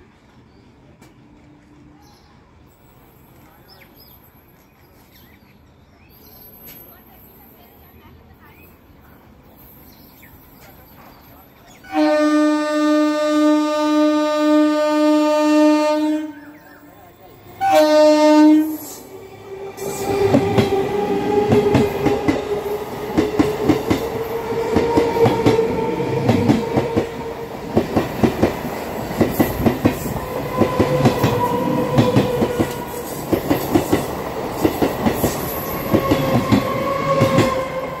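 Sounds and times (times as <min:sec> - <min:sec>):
steady train tone: 0:11.9 - 0:38.0
train wheels clacking: 0:19.8 - 0:38.0.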